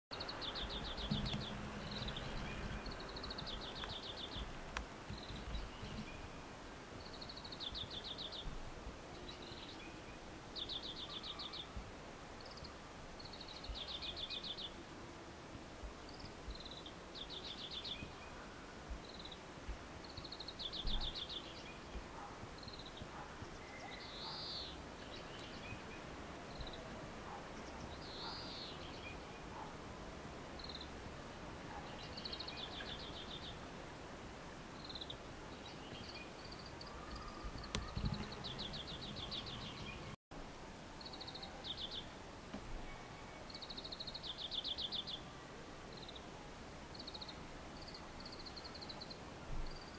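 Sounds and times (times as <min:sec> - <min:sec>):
bird chirps: 0:00.1 - 0:04.5, 0:20.0 - 0:29.7, 0:34.8 - 0:40.2
bird singing trills: 0:00.1 - 0:04.5, 0:34.8 - 0:40.2.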